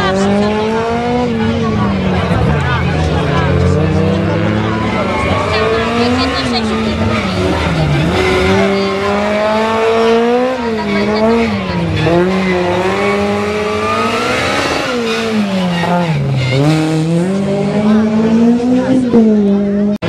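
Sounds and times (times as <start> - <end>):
rally car engine revving: 0.0 - 20.0.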